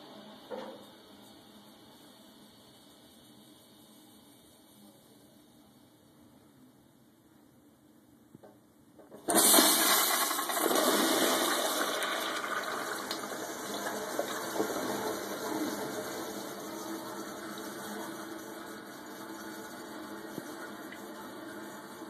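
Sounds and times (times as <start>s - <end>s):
toilet flushing: 9.0s - 22.0s.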